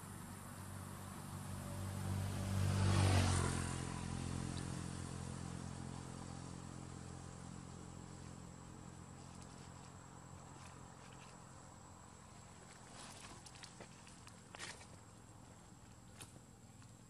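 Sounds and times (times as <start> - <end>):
vehicle engine passing by: 0.0 - 13.4.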